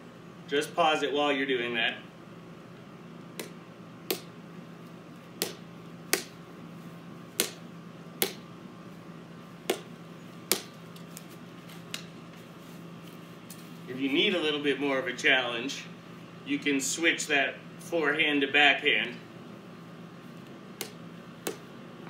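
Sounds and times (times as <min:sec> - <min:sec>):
paddle hitting plastic ball: 0:03.4 - 0:04.3, 0:05.3 - 0:06.4, 0:07.3 - 0:08.4, 0:09.6 - 0:11.2, 0:20.8 - 0:21.7.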